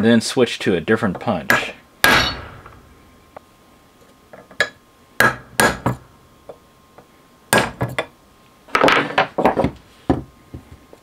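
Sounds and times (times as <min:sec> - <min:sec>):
hammer striking steel punch: 0:01.5 - 0:03.1, 0:05.2 - 0:06.1, 0:07.5 - 0:07.9.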